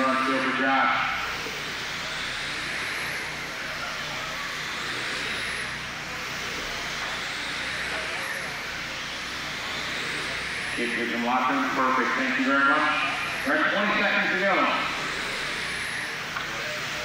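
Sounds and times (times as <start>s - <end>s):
high whines of passing cars: 0.0s - 17.0s.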